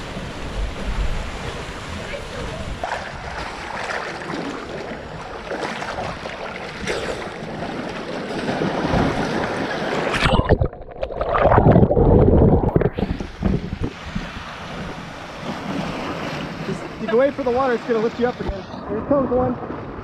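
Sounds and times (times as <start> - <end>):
waves splashing against rock: 0.0 - 20.0.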